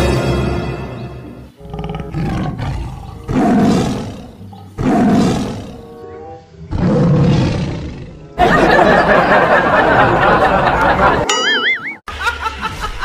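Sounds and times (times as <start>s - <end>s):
lion roar sound effect: 1.6s - 5.9s, 6.7s - 8.2s.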